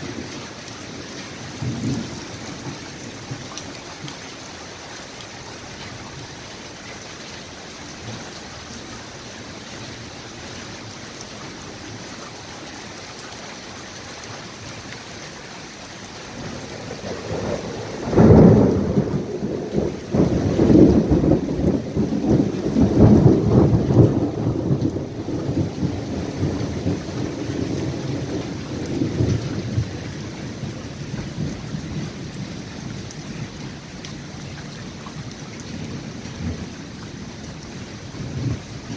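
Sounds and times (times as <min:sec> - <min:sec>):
steady rain falling: 0:00.0 - 0:38.9
thunder crack and rumbles: 0:01.5 - 0:03.5, 0:16.4 - 0:38.9.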